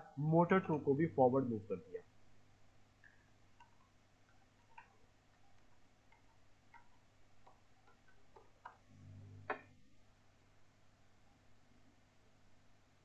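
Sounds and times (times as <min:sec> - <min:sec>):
computer keyboard typing: 0:03.0 - 0:08.9.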